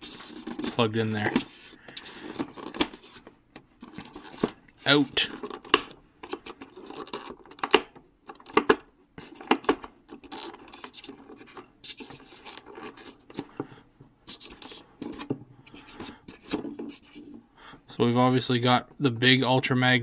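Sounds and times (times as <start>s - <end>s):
styrofoam scraping and rubbing: 0.0s - 3.3s, 3.9s - 5.3s, 10.2s - 13.5s, 14.3s - 17.4s.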